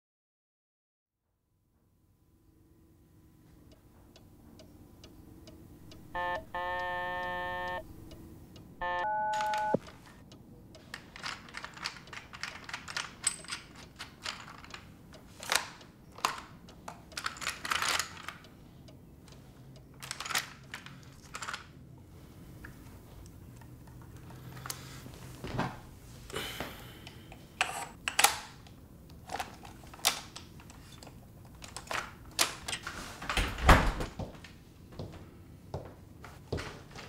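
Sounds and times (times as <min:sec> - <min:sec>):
low hum: 0:01.8 - 0:09.8
short electronic tones: 0:05.8 - 0:08.2, 0:08.8 - 0:09.8.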